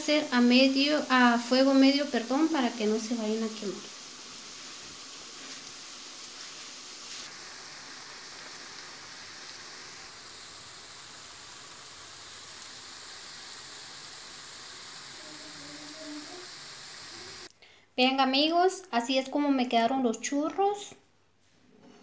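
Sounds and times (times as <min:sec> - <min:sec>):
dough sizzling in hot oil: 0:00.0 - 0:17.5.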